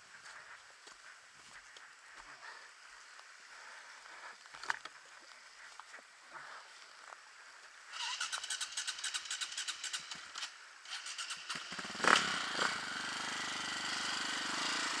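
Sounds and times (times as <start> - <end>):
dirt bike engine running: 8.1 - 15.0.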